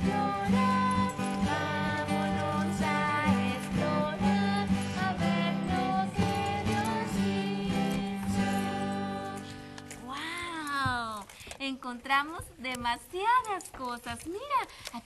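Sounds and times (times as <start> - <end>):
upbeat acoustic guitar music: 0.0 - 11.4.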